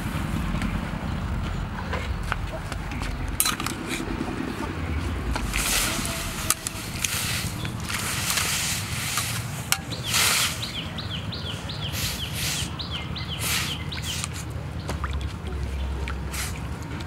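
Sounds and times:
bird chirping: 9.7s - 14.4s.

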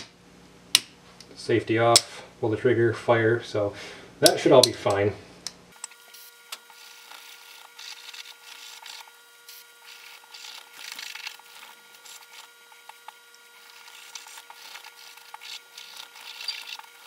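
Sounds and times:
toothbrush scrubbing metal: 6.7s - 17.0s.

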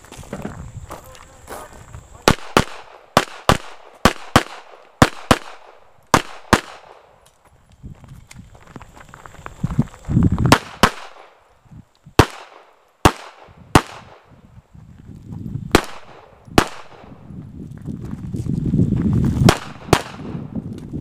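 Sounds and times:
pistol shots: 2.3s - 7.1s, 10.5s - 11.4s, 12.2s - 14.2s, 15.7s - 17.2s, 19.5s - 20.4s.

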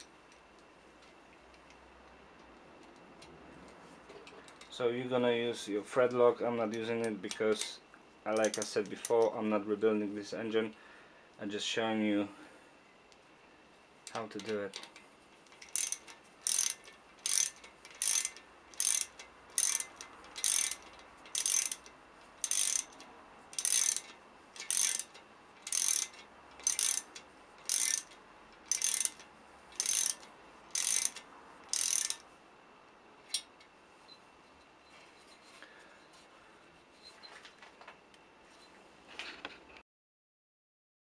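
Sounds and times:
ratchet wrench clicking: 6.7s - 9.3s, 14.1s - 32.3s, 33.3s - 33.6s.

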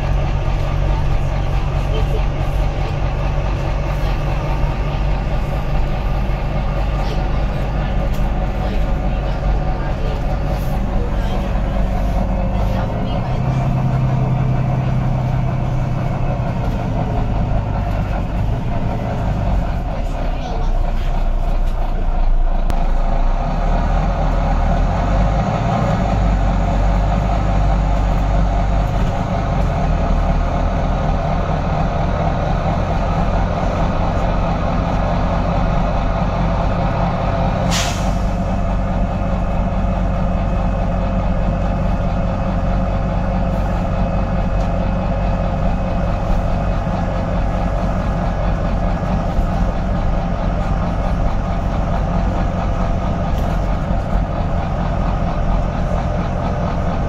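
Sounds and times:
bus diesel engine drone: 0.0s - 57.0s
compressed air hiss: 37.7s - 38.2s.

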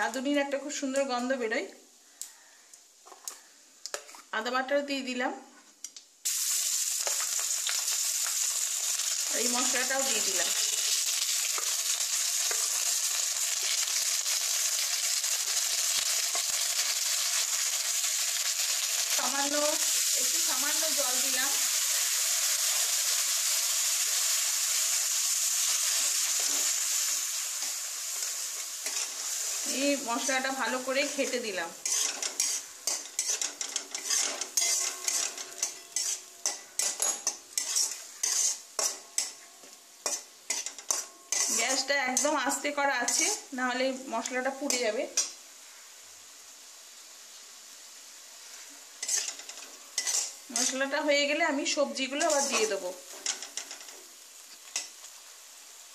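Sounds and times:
paste sizzling in hot oil: 6.2s - 55.9s
metal spatula scraping a pan: 27.6s - 43.5s, 48.5s - 50.9s, 52.1s - 54.9s.

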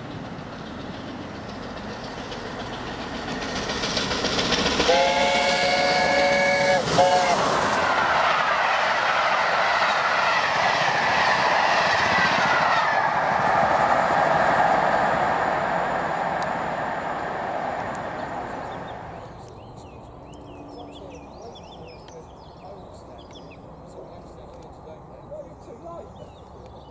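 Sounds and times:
train rushing past: 0.0s - 26.1s
train chime whistle: 4.8s - 7.4s
birds chirping faintly: 18.0s - 26.9s.

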